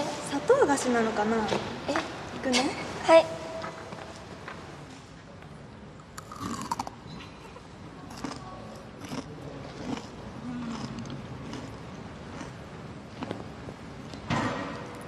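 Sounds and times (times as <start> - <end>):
candy crunching when chewed: 6.2 - 7.0, 8.1 - 12.6.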